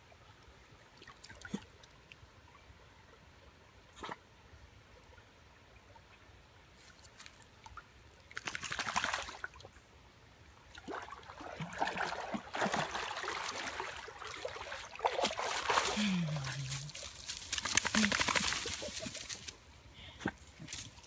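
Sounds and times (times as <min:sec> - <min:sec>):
dog splashing through water: 0:10.9 - 0:19.1.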